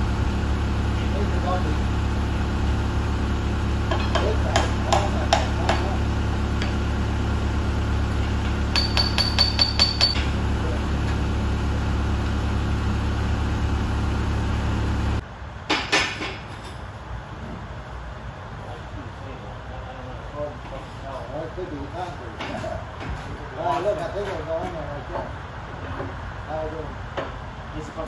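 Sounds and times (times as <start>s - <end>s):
engine idling: 0.0s - 15.2s
hammer striking steel: 3.9s - 6.0s, 8.7s - 10.3s.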